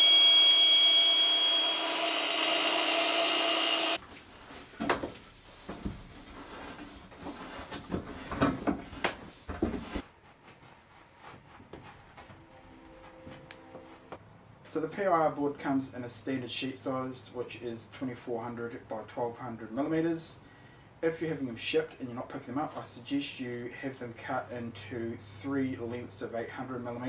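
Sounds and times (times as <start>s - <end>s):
loud steady electronic tone: 0.0s - 4.0s, 12.3s - 14.2s.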